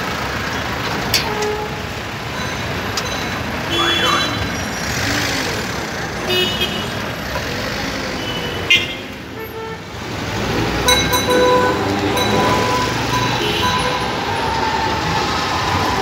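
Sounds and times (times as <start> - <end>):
street traffic din: 0.0 - 16.0
tram rolling on track: 0.0 - 16.0
horn toots: 10.8 - 14.2.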